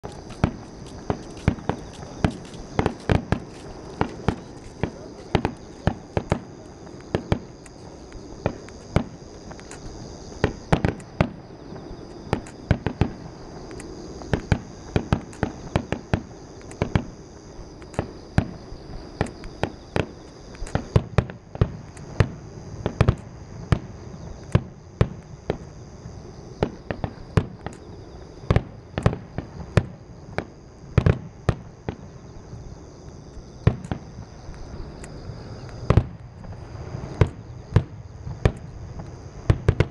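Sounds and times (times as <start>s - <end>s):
firework shells bursting: 0.0s - 11.5s.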